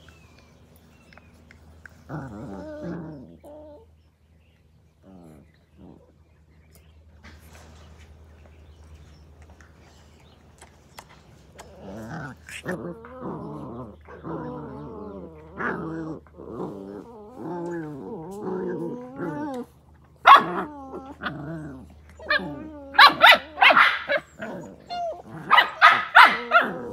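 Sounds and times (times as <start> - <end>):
puppies play-growling: 0.0 - 26.9
puppy barking: 20.2 - 20.7, 22.3 - 24.4, 25.0 - 26.9.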